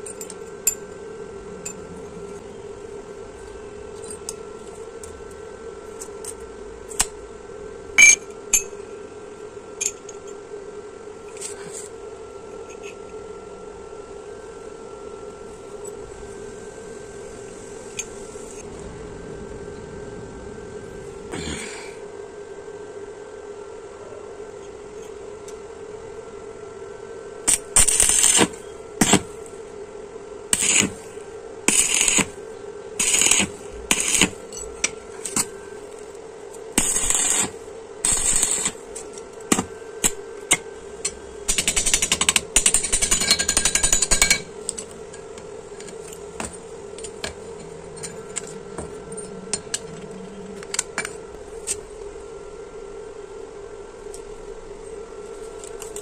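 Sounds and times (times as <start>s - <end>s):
steady hum: 0.0s - 56.0s
arc welding crackle: 27.5s - 29.6s, 30.5s - 52.3s.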